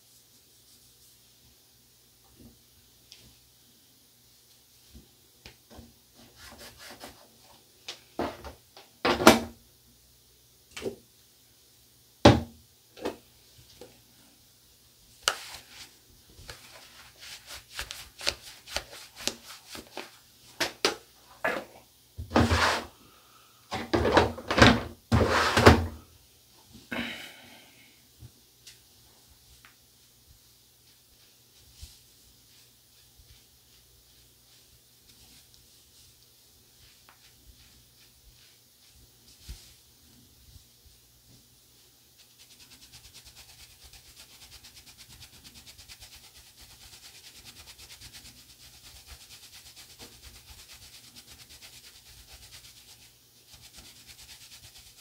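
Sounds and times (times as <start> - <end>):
towel rubbing and patting: 15.2 - 20.2, 42.2 - 55.0.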